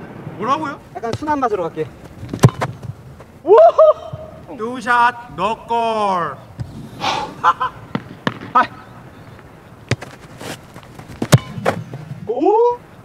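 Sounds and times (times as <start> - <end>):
ball kicked thud: 2.2 - 3.0, 9.9 - 10.2, 11.2 - 12.2.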